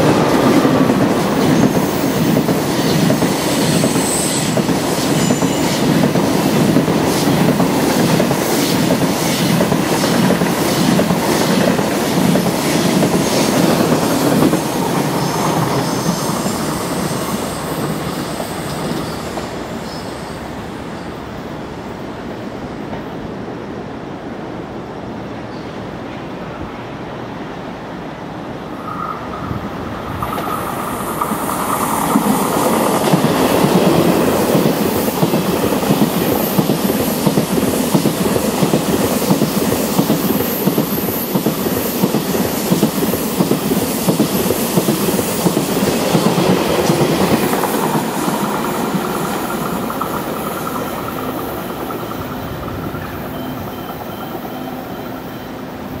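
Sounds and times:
high-speed train passing: 0.0 - 56.0
rapid wheel clatter on rails: 30.3 - 53.3.

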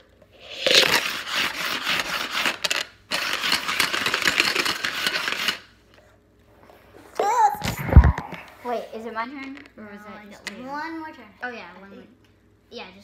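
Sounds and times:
dice rattling in a dice cup: 0.5 - 5.6.

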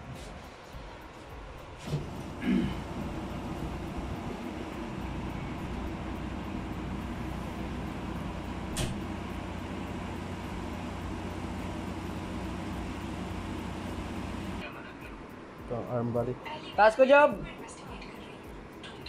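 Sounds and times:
low machine hum: 1.6 - 15.3
sharp click: 8.8 - 9.0.

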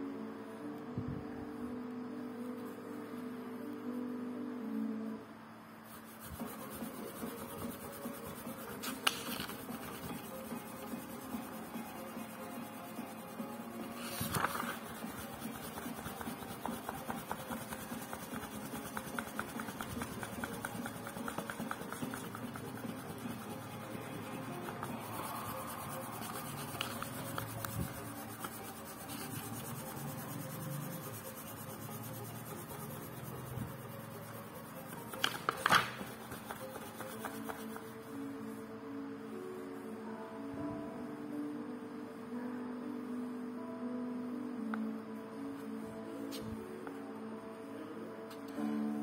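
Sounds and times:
faint background music: 0.0 - 49.0
book pages rustling: 8.8 - 10.0, 13.9 - 16.3, 24.6 - 29.7, 34.9 - 37.9.

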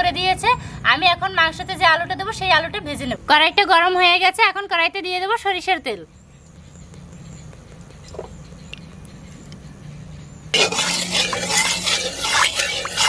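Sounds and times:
oil sizzling and crackling: 10.6 - 13.0.

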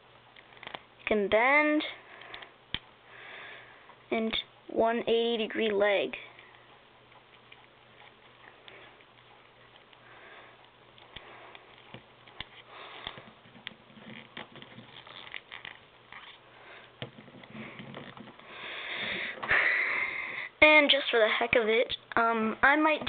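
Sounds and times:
sniffing and breathing: 7.8 - 11.9, 12.5 - 13.4, 16.4 - 20.5.

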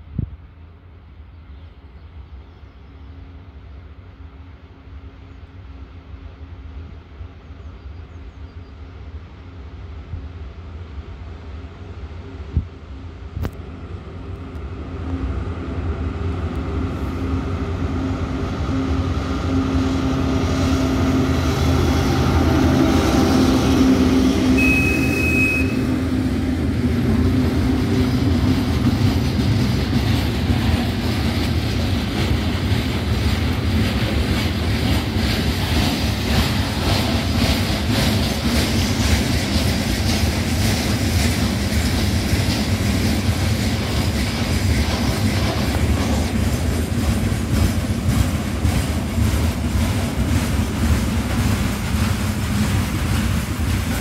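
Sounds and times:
diesel locomotive engine drone: 0.0 - 54.0
freight train rolling rumble: 0.0 - 54.0
brief high-pitched tone: 24.6 - 25.9.

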